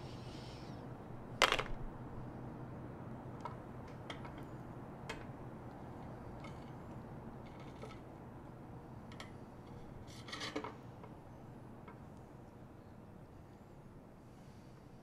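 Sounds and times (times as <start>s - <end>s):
steady low hum: 0.0s - 15.0s
objects clicking and tapping: 1.4s - 1.8s.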